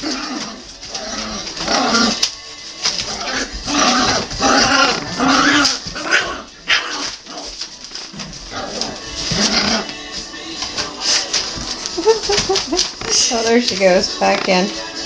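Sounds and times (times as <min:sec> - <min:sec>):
puppies growling and yapping: 0:00.0 - 0:13.8.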